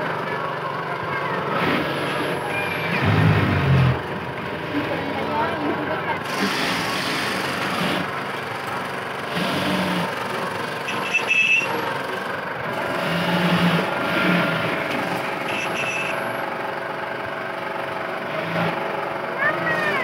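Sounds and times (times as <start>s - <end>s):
engine-like mechanical noise: 0.0s - 20.0s
high-pitched tone: 15.5s - 16.3s.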